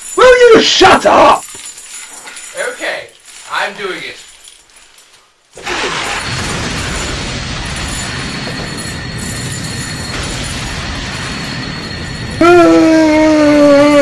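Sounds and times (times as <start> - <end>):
flames burning with rushing noise: 5.6 - 14.0.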